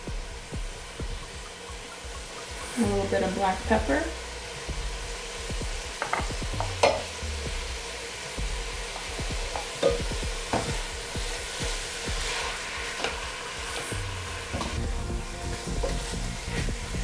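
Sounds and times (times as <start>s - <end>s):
meat sizzling in a pot: 0.0s - 17.0s
spoon knocking against a pot: 6.0s - 7.0s.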